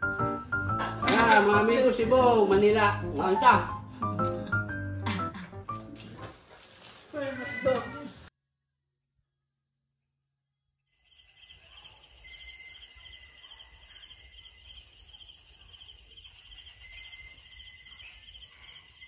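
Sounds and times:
night insects trilling: 10.9s - 19.0s.

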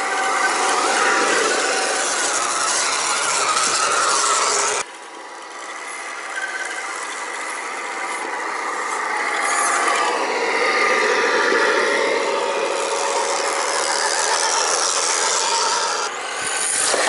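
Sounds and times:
rc truck motors whining: 0.0s - 17.0s.

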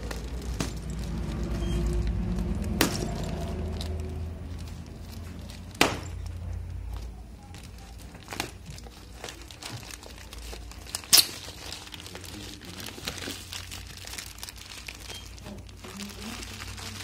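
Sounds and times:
plastic wrapping crackling: 0.0s - 17.0s.

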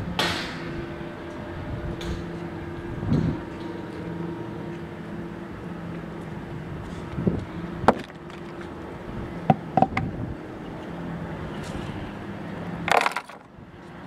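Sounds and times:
sharp knocks: 9.5s - 10.1s.

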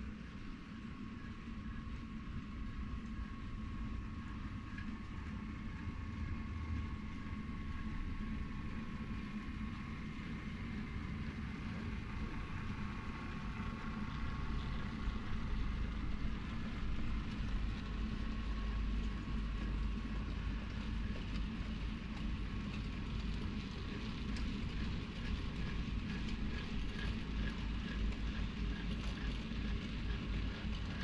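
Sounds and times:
train rumble with high whine: 0.0s - 31.0s.

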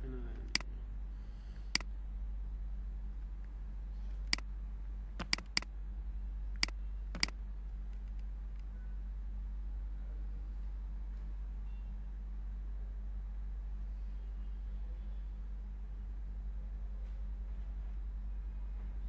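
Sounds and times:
low electrical hum: 0.0s - 19.0s
computer mouse clicking: 5.2s - 5.7s, 6.6s - 7.3s.

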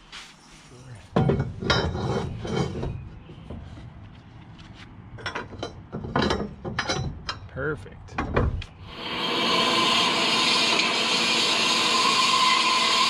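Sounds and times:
metal scraping and clunking: 1.1s - 3.9s, 5.2s - 7.5s.

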